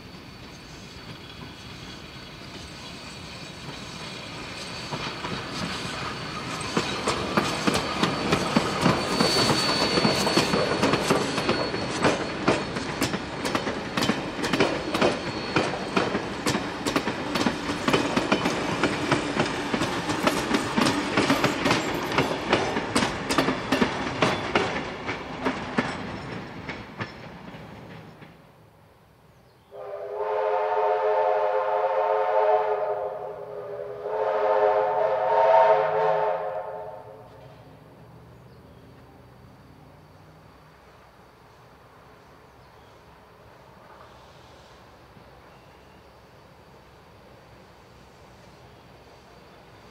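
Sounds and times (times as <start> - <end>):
train wheels clicking over rail joints: 0.0 - 28.6
steam locomotive whistle blasts: 29.7 - 37.5.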